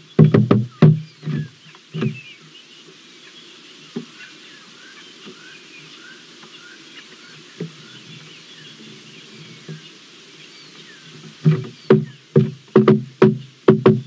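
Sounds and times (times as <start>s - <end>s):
woodpecker knocking on wood: 0.0s - 2.2s, 11.4s - 14.0s
small birds chirping: 0.0s - 14.0s.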